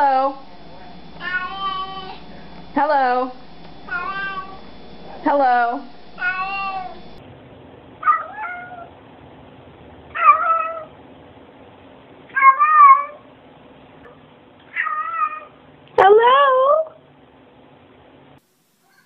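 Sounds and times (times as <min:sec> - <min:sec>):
cats meowing: 0:01.2 - 0:02.3, 0:03.9 - 0:04.7, 0:06.2 - 0:07.2, 0:08.0 - 0:08.9, 0:10.1 - 0:10.9, 0:12.4 - 0:13.2, 0:14.7 - 0:15.5.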